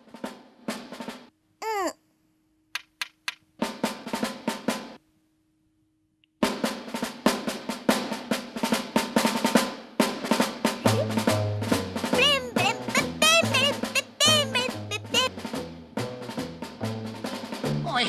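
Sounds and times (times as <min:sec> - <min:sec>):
toy drum beaten fast: 0:07.3 - 0:18.0.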